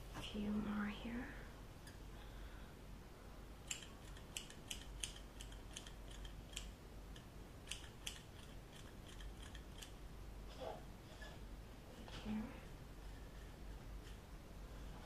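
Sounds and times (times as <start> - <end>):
scissors snipping hair: 3.6 - 10.0.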